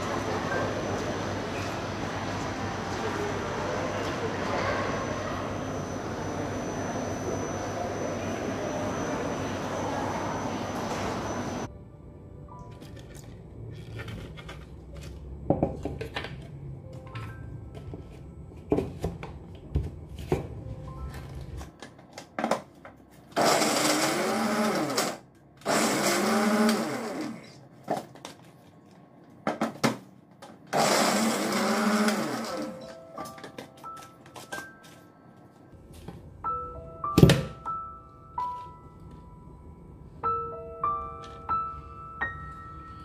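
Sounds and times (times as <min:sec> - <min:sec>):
blender motor whine: 0:23.4 - 0:27.6, 0:30.7 - 0:32.7.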